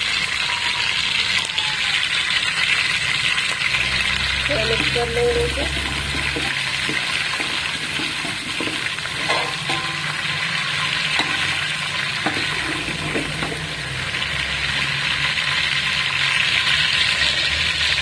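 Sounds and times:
spices sizzling in hot oil: 0.0s - 18.0s
metal spoon knocking against pot: 5.7s - 10.3s, 11.2s - 13.7s.

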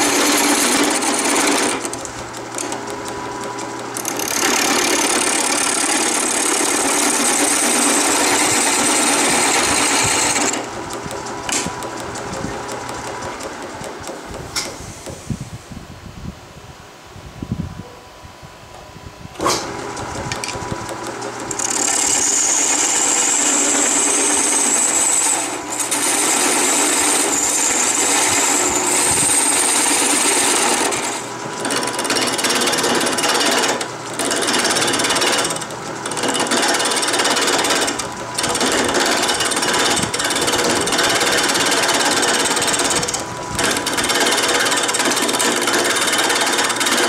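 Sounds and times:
gouge chattering on spinning wood: 0.0s - 15.2s, 19.8s - 47.0s
lathe motor hum: 0.0s - 15.2s, 19.6s - 47.0s.

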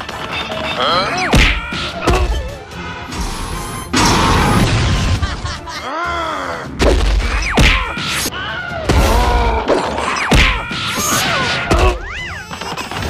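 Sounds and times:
background music: 0.0s - 13.0s
character cries: 0.8s - 2.4s, 7.7s - 9.7s
cartoon hits and crashes: 3.9s - 5.3s.

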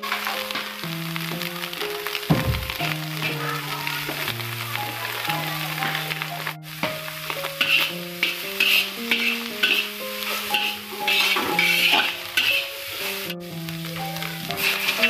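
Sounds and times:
background music slow notes: 0.0s - 15.0s
stir-frying sizzle: 0.0s - 15.0s
metal spatula scraping wok: 7.5s - 13.3s, 14.6s - 15.0s.

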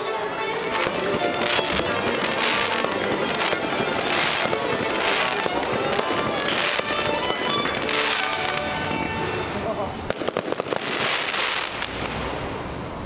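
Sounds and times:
music playing: 0.0s - 10.1s
firework fountains hissing: 0.0s - 13.0s.

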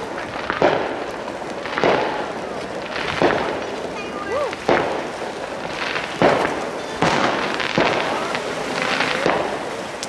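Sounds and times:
firework fountain hissing: 0.0s - 10.0s
sharp bangs: 4.5s - 9.8s.

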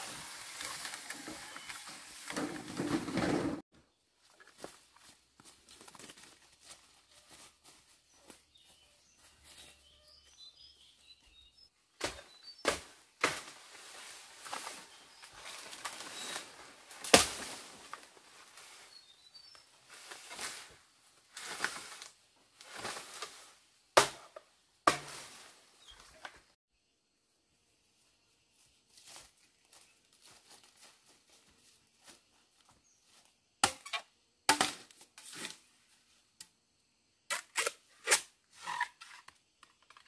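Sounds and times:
faint bird chirps: 8.1s - 12.6s.

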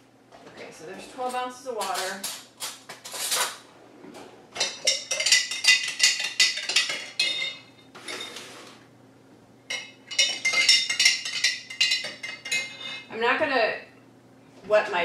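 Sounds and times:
metal utensil clinking on glass jar: 9.7s - 13.0s.

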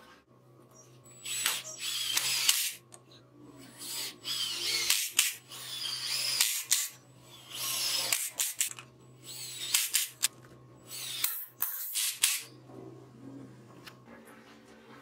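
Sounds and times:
power drill driving screws: 1.2s - 2.8s, 3.9s - 6.8s.

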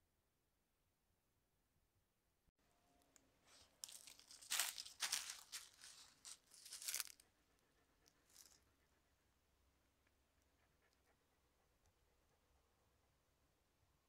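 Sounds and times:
footsteps crunching through dry leaves: 3.5s - 7.2s.

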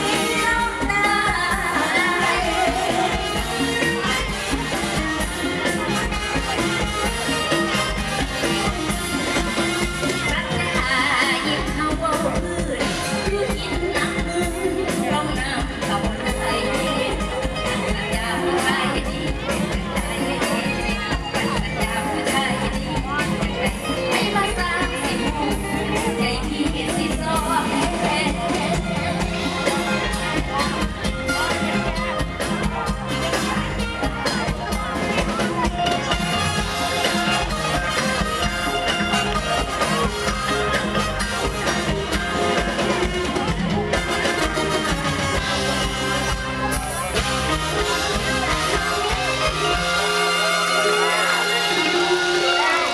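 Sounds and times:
woman singing into microphone: 0.0s - 3.4s, 10.2s - 29.3s
band drum beat and bass: 0.0s - 52.9s.

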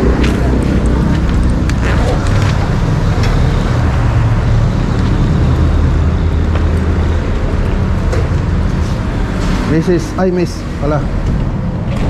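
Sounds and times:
motor vehicle rumble: 0.0s - 12.0s.

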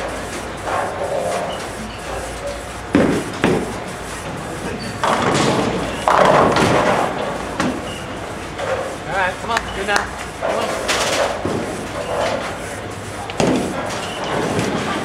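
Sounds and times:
bowling pins crashing: 5.0s - 7.8s.

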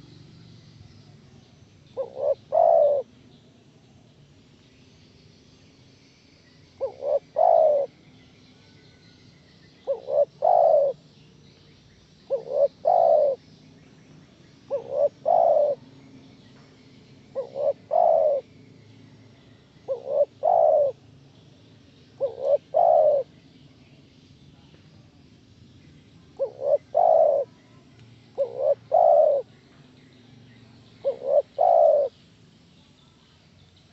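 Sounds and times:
dove cooing: 2.0s - 3.1s, 6.8s - 8.0s, 9.8s - 11.0s, 12.3s - 13.4s, 14.7s - 15.9s, 17.3s - 18.5s, 19.8s - 21.0s, 22.2s - 23.3s, 26.4s - 27.6s, 28.4s - 29.5s, 30.9s - 32.2s.

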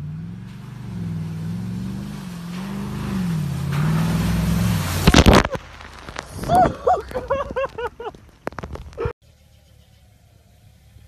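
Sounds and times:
suv engine revving: 0.0s - 5.5s
water splashing: 0.1s - 9.1s.

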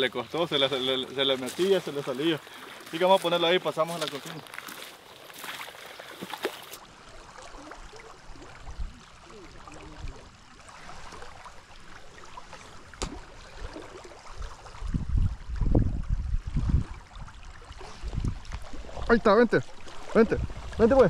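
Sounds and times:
fast river current rushing: 0.0s - 15.0s.

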